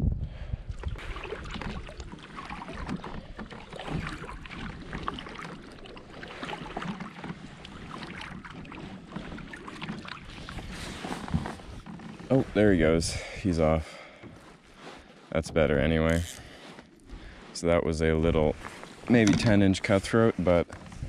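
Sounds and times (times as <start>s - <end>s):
wind rumble on microphone: 0.0s - 5.2s, 20.8s - 21.0s
paddle dipping through water: 0.4s - 21.0s
water splashes and drips: 0.7s - 11.9s.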